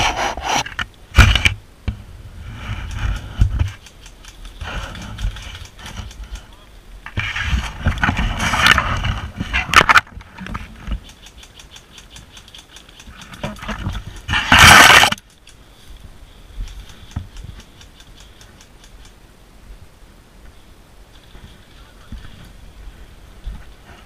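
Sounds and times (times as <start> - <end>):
leaves and branches scraping: 0.0 - 19.1, 20.5 - 24.0
faint rapid clicks: 2.8 - 6.6, 10.4 - 15.7, 16.5 - 19.2.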